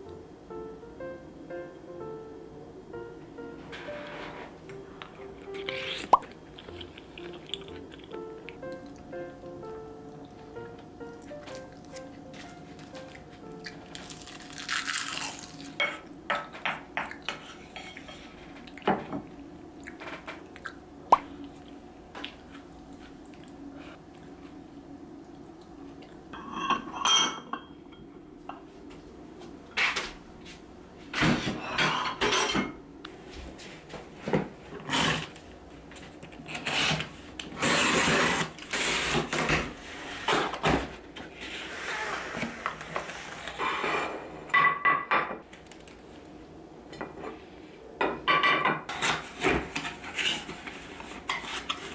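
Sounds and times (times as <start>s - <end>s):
dishes and cutlery clinking: 15.8s - 19.2s, 26.3s - 28.0s, 31.2s - 32.8s.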